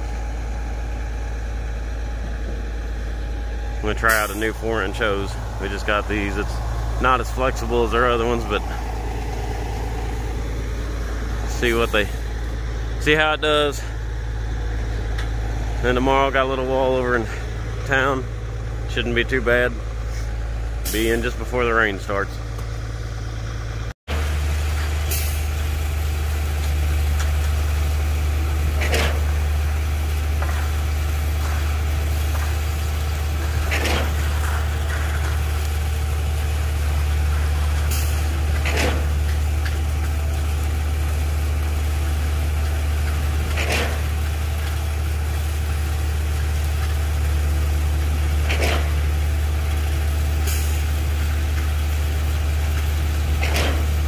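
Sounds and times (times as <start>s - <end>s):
concrete pump truck running: 0.0s - 54.0s
pump valve clack and hiss: 48.4s - 49.0s, 52.7s - 54.0s.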